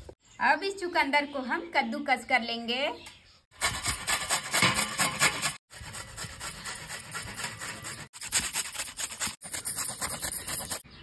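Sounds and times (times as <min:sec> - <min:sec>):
grating on a metal grater: 0:03.6 - 0:10.9.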